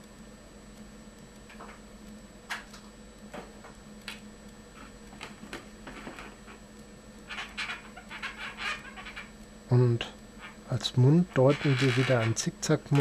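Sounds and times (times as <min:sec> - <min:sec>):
balloon squeaking and creaking: 0:07.3 - 0:09.3, 0:11.3 - 0:13.0.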